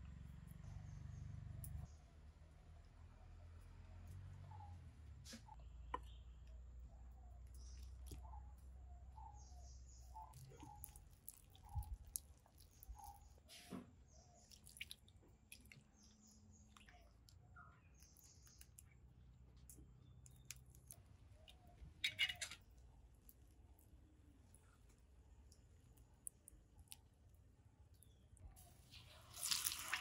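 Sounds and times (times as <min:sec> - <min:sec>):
small birds chirping: 0:03.2 - 0:30.0
hand mixing batter in a bowl: 0:28.2 - 0:30.0.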